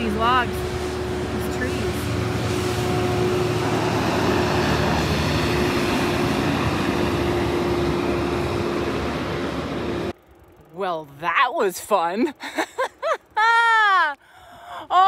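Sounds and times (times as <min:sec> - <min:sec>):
truck diesel engine: 0:00.0 - 0:10.6.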